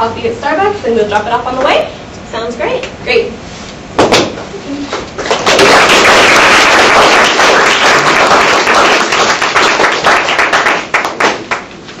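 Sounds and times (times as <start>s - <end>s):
audience applauding: 5.2s - 11.8s.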